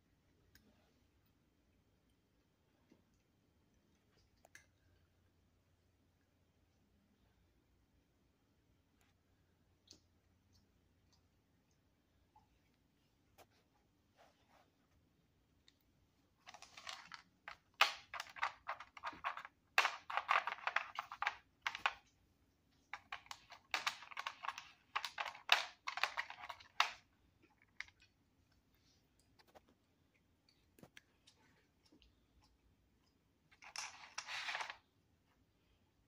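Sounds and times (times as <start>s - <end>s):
plastic puzzle clicking and rattling: 16.4s - 22.1s, 22.9s - 28.0s, 33.6s - 34.8s.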